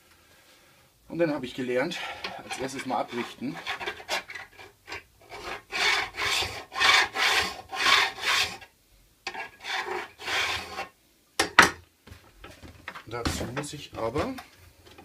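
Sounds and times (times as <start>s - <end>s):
metal file rasping on steel: 1.9s - 8.7s, 9.3s - 10.9s.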